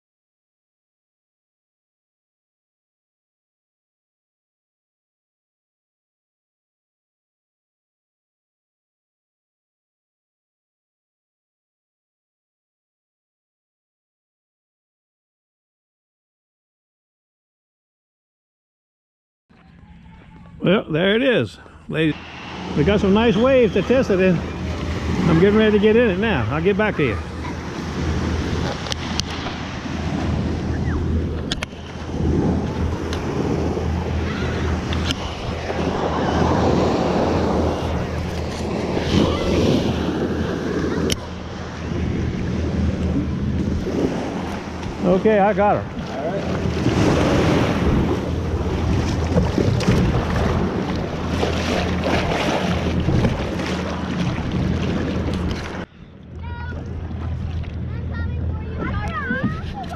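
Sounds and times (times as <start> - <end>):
surf splashing against kayak hull: 21.0 - 59.9
small waves washing on beach: 21.1 - 55.9
wind noise on microphone: 22.6 - 45.1, 45.8 - 59.9.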